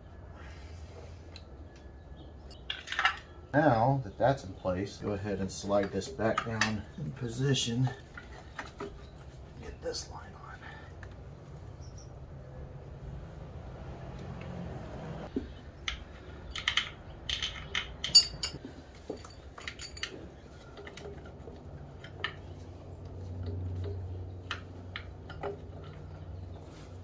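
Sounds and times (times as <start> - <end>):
metallic clinks of hand tools: 17.4 - 20.2.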